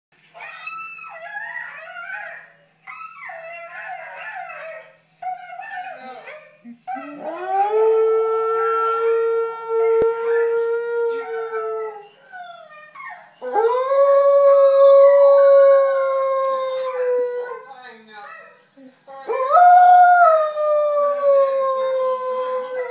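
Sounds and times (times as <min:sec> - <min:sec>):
dog howling: 0:07.0 - 0:17.6, 0:19.3 - 0:22.9.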